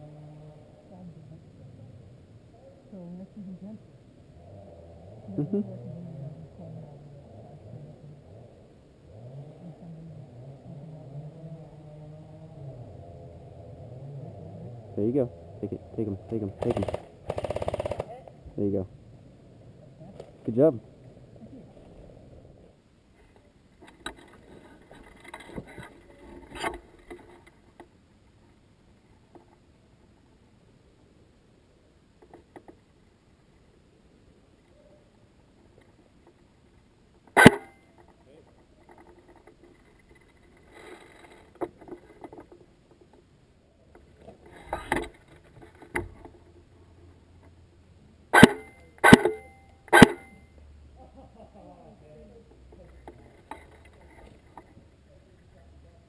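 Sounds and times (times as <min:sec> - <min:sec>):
rustle of gear: 0:37.1 - 0:43.3
airsoft gun shots: 0:37.4 - 0:37.7, 0:48.4 - 0:50.3.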